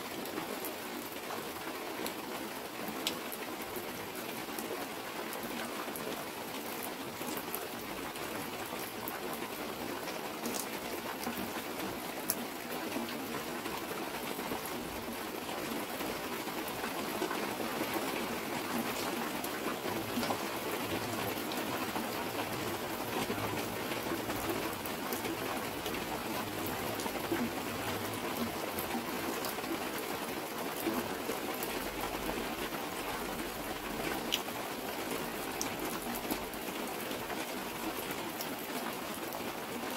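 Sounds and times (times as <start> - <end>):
steady rain: 0.0 - 39.9
water streaming down plastic sheet: 6.7 - 39.8.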